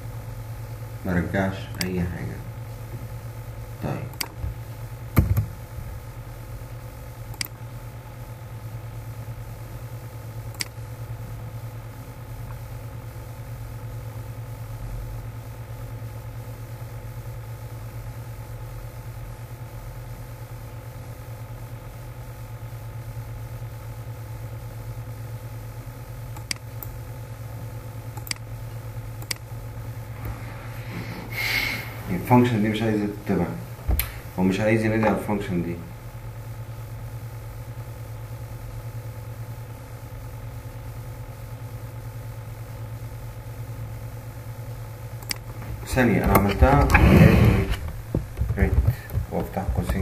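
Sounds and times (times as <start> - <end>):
low hum: 26.4 - 37.0, 45.2 - 50.0.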